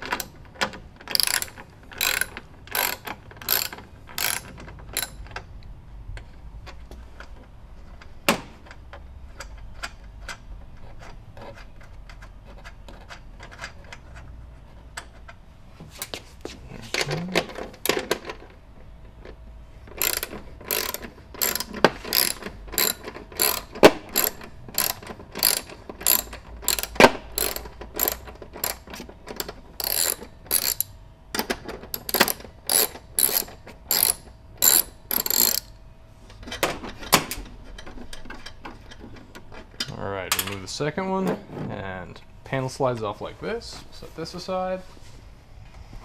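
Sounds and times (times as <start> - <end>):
ratchet wrench clicking: 1.1 - 5.2, 19.9 - 30.9, 32.0 - 35.7.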